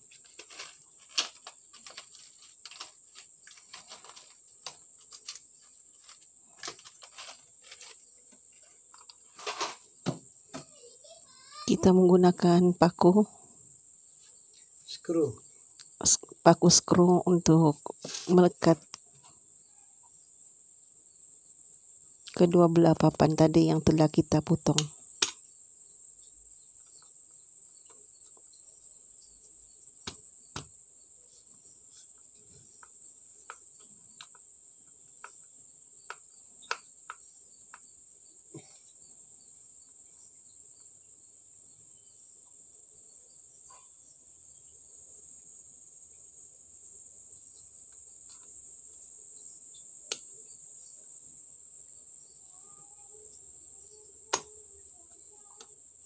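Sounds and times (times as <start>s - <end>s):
high-pitched insect chirring: 51.8s - 56.0s.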